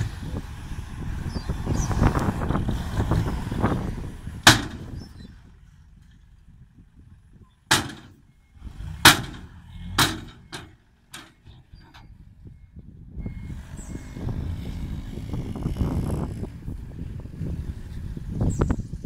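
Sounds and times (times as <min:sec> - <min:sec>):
truck engine rumbling: 0:00.0 - 0:19.0
tailgate banging against metal: 0:04.4 - 0:05.3, 0:07.6 - 0:12.2.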